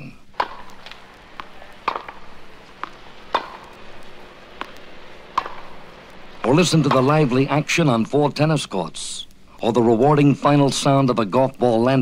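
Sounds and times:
faint hiss: 0.0 - 12.0
tennis balls struck and bouncing: 0.3 - 8.6.

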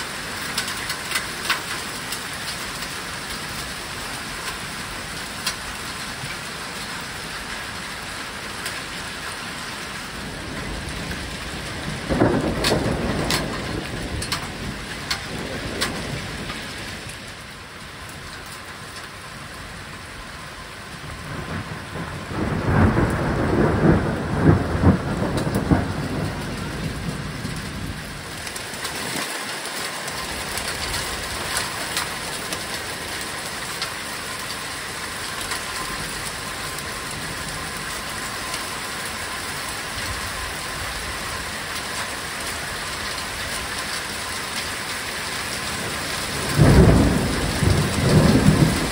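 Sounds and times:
raindrops tapping: 0.0 - 19.2, 21.2 - 48.9
heavy rain falling: 0.0 - 48.9
thunder rolling: 10.2 - 16.9, 21.1 - 29.0, 45.7 - 48.9.

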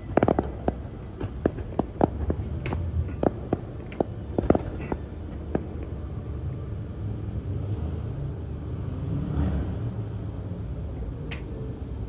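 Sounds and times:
distant fireworks rumble: 0.0 - 7.5
sharp click: 11.3 - 11.5.

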